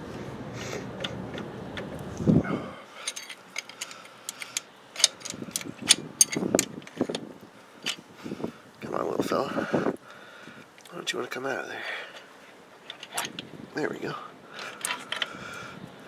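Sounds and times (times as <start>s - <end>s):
metal tools clicking and clinking: 3.0s - 7.2s, 12.8s - 13.5s, 14.6s - 15.3s.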